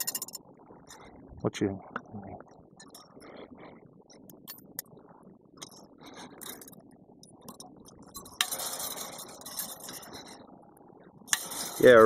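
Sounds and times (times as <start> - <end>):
wire clicking and scraping: 0.0 - 1.1, 2.8 - 3.2, 5.6 - 10.5, 11.3 - 12.0.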